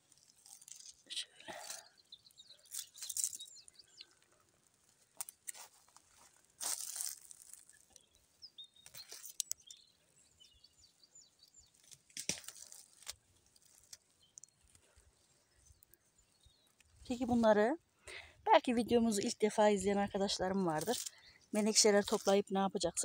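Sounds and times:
leaves and stems rustling: 0.0 - 8.2, 8.8 - 9.6, 11.7 - 15.8, 19.1 - 22.6
faint bird chirps: 0.9 - 4.4, 7.7 - 11.8.

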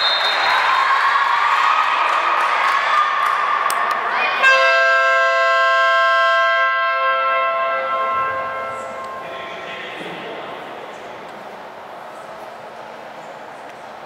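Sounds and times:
crowd noise and applause: 0.0 - 4.7
long horn blast: 4.4 - 9.6.

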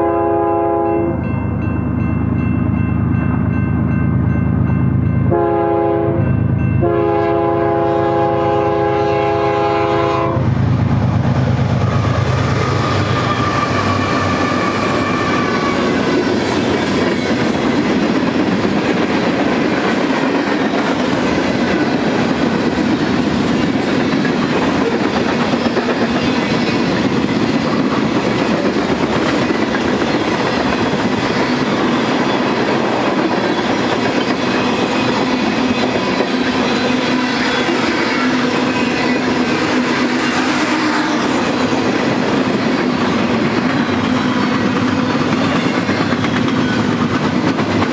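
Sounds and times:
locomotive air horn: 0.0 - 1.2, 5.3 - 6.2, 6.8 - 10.5
train wheels clacking on rail joints: 11.8 - 47.9.

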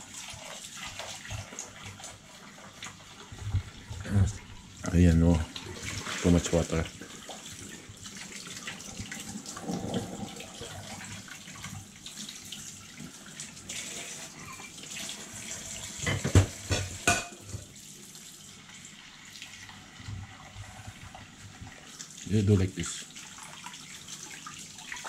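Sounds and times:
dishes knocking: 16.0 - 17.4
tap running into steel sink: 16.0 - 17.6.

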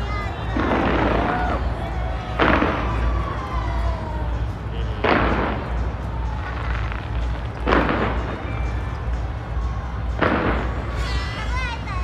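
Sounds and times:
firework bang: 0.5 - 3.3, 5.0 - 5.8, 6.6 - 8.8, 10.1 - 11.0.

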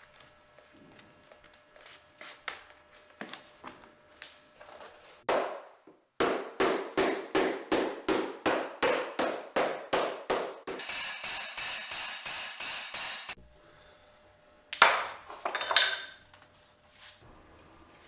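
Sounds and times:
hammer beating leather sole: 6.2 - 13.2.

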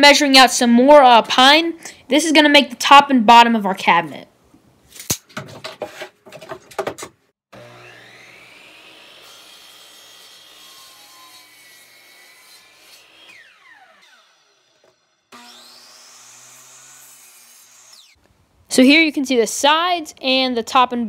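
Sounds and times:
miter saw whining: 7.5 - 18.2
saw cutting wood board: 7.5 - 18.2.

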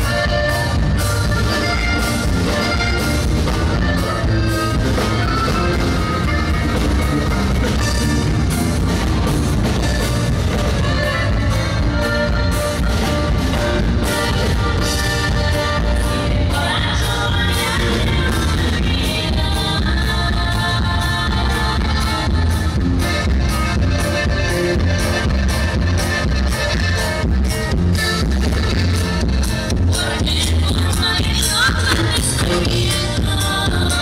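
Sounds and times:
live dance band music: 0.0 - 34.0.

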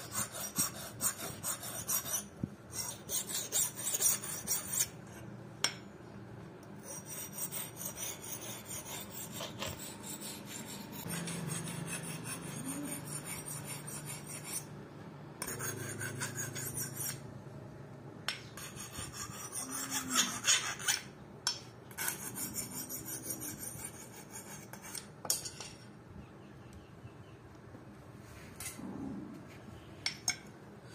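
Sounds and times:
hand file rasping on metal: 0.0 - 4.9, 6.8 - 14.7, 15.4 - 17.2, 18.6 - 21.1.

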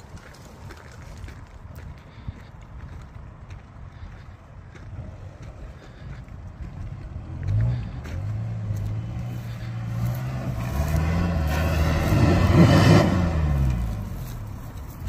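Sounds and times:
off-road vehicle engine revving: 6.6 - 15.0.

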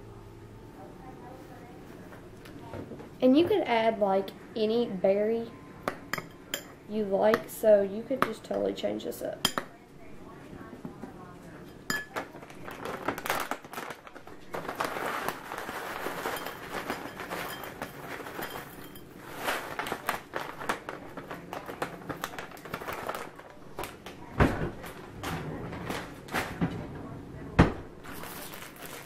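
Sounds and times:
plastic bag rustling: 12.1 - 24.0, 28.0 - 29.0.

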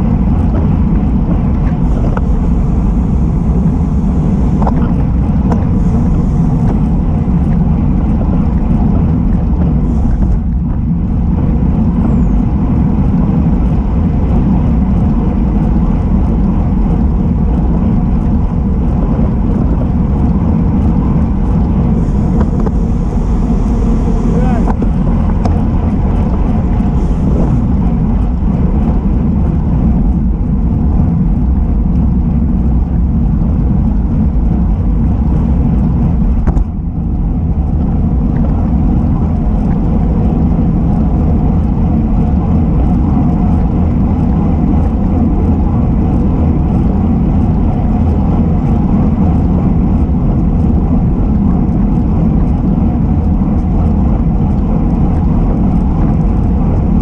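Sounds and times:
tyre and road noise: 0.0 - 57.0
wind rushing over microphone: 0.0 - 57.0.

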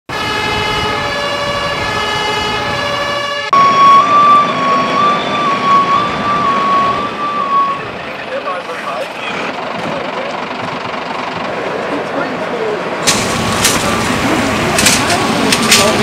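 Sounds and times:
two-tone emergency siren: 0.1 - 8.5.

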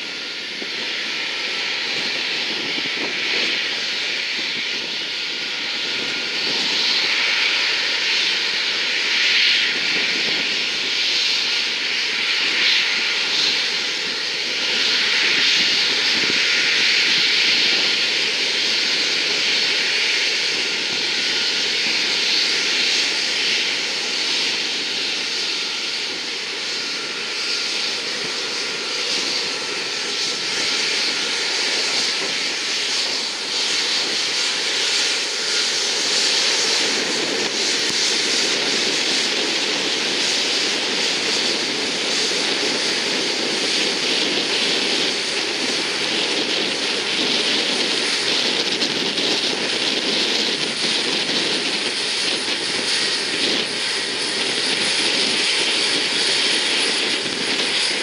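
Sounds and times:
jet engines at taxi power: 0.0 - 58.0.

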